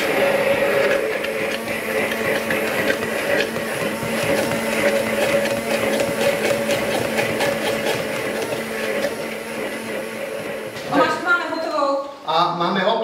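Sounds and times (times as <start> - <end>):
hand blender motor hum: 0.0 - 11.5
pulp churning clicks: 0.4 - 9.3.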